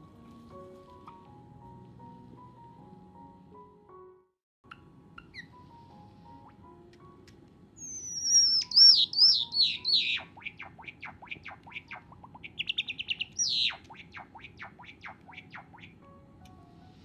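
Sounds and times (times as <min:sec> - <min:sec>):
sparrow singing: 0:04.7 - 0:05.6, 0:07.8 - 0:16.0.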